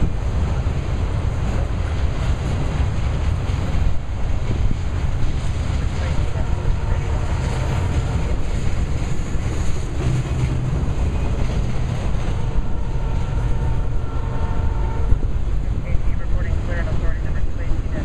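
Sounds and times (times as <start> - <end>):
freight cars rumbling on rails: 0.0 - 18.0.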